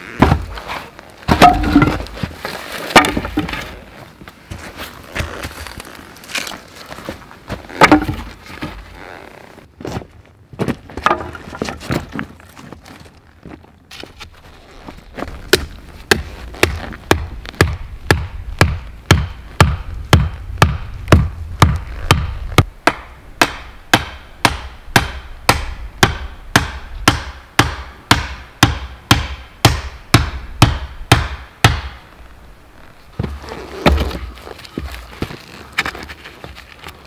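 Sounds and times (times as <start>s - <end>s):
hand tool striking wood: 1.3s - 2.2s, 2.9s - 3.7s, 7.8s - 8.3s, 15.5s - 32.0s.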